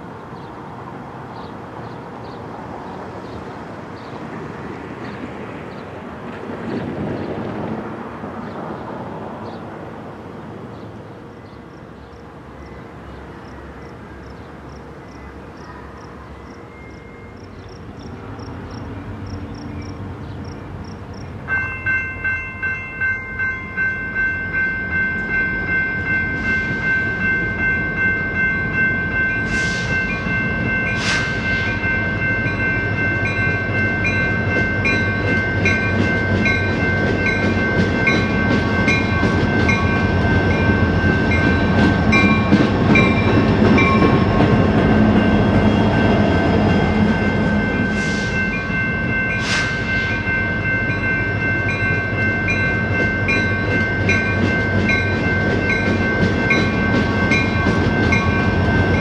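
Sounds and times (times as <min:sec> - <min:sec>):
freight train rumbling: 0:00.0 - 0:59.0
railroad crossing bell ringing: 0:11.2 - 0:59.0.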